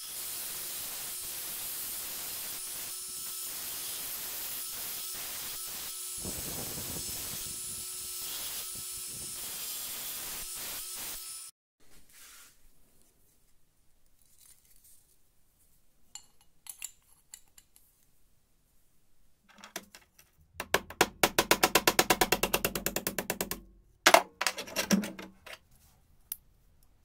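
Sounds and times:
metal parts clicking: 24.1s - 25.6s.

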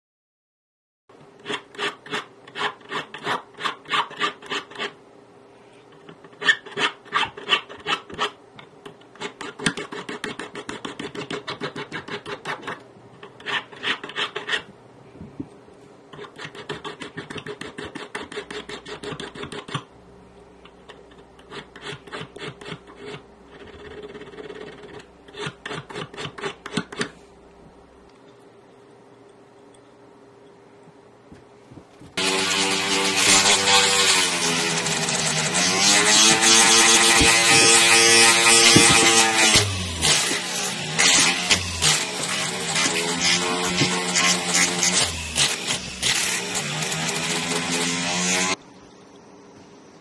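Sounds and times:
hand file rasping on metal: 1.4s - 5.0s, 6.3s - 8.4s, 9.2s - 14.7s, 16.1s - 19.9s, 20.9s - 27.2s, 32.2s - 48.6s.

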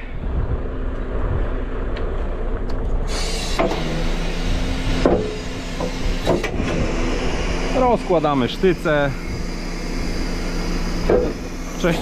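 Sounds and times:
diesel engine running: 0.0s - 12.0s
hydraulic hiss and hum: 0.0s - 12.0s
clunks: 2.0s - 4.1s, 4.9s - 7.2s, 11.0s - 11.8s.

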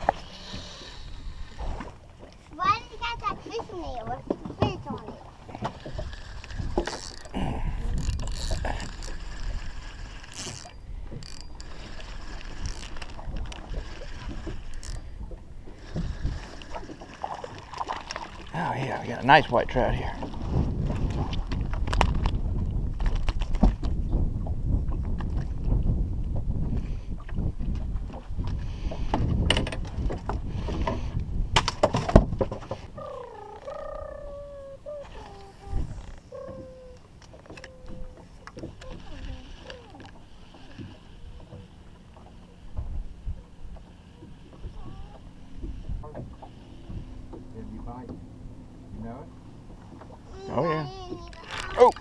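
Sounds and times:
wind buffeting microphone: 0.0s - 16.9s, 18.2s - 52.0s
fishing reel whirring and clicking: 5.8s - 15.2s
microphone handling noise: 20.2s - 36.8s
wavering gliding call: 32.8s - 42.7s.

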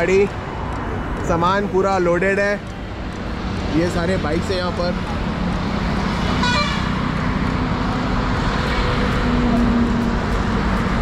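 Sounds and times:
road traffic engines: 0.0s - 11.0s.

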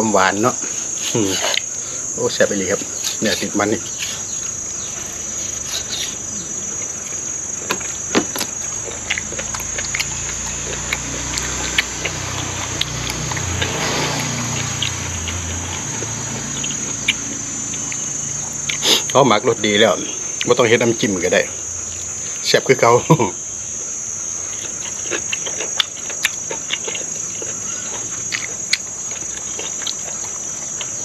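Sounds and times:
insect chorus trilling: 0.0s - 31.0s
person chewing food: 0.6s - 1.8s, 3.9s - 19.2s, 24.2s - 31.0s.

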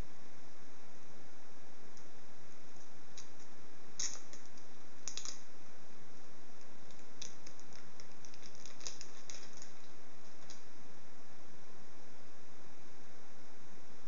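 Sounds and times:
plastic film crackling: 4.0s - 5.4s, 6.9s - 10.6s.

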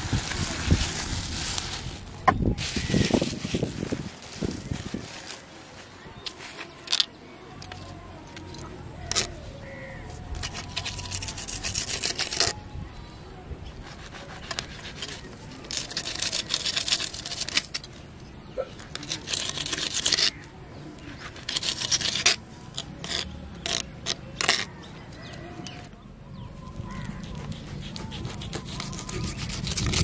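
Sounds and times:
knife scraping fish on stone: 8.5s - 9.4s, 10.3s - 12.6s, 13.8s - 18.0s, 18.8s - 25.9s, 26.9s - 30.0s
blade tapping on stone: 18.8s - 20.4s, 21.3s - 24.7s.

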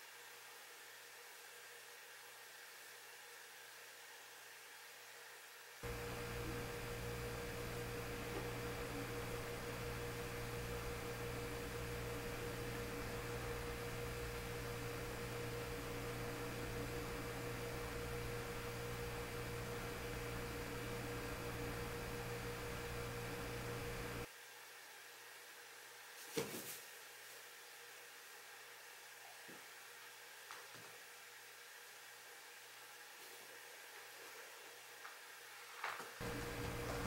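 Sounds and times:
electrical hum with high tone: 5.8s - 24.3s, 36.2s - 37.0s.

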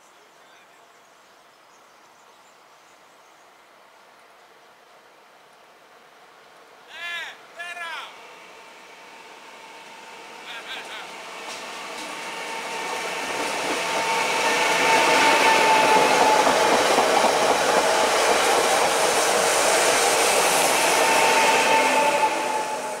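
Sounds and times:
train whine: 8.0s - 23.0s
train wheels on rails: 8.2s - 23.0s.

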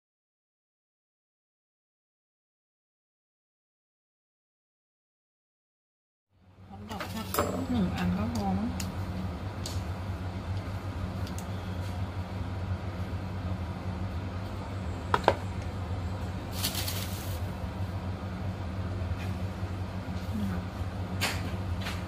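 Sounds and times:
steady low hum: 6.4s - 22.0s.

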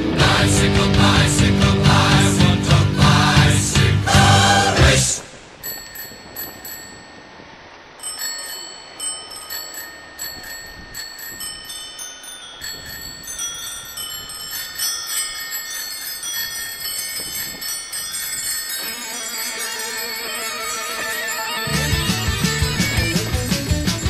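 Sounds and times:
chiming bell-like notes: 5.6s - 23.2s.

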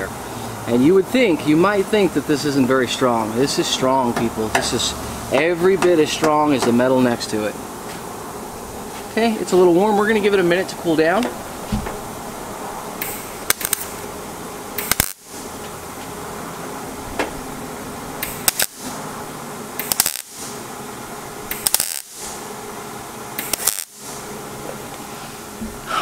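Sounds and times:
welding arc crackling bursts: 8.6s - 24.6s.

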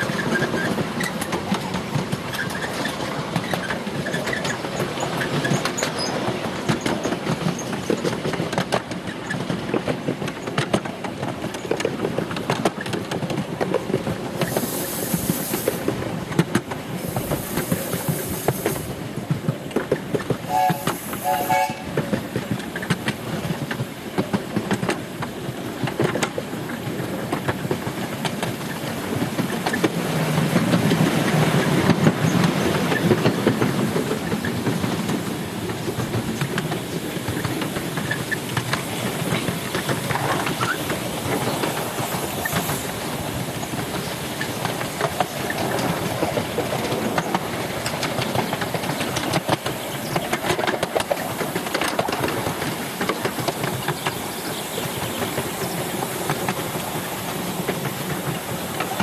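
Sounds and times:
train running rumble: 0.0s - 59.0s
wheels clattering over rail joints: 0.0s - 59.0s
train whistle notes: 20.5s - 22.0s.

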